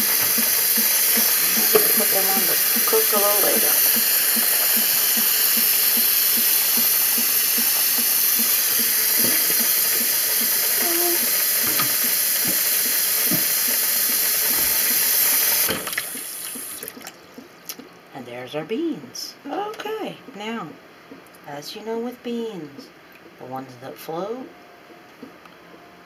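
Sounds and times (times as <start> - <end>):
tap water running into metal bowl: 0.0 - 17.2.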